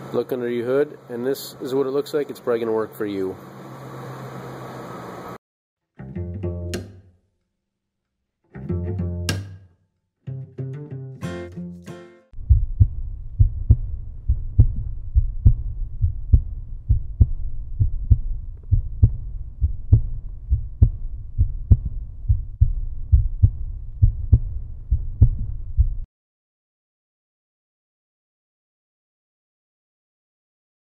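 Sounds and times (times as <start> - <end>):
heartbeat-like low thumps: 12.4 - 26.1
low rumbling drone: 12.4 - 26.1.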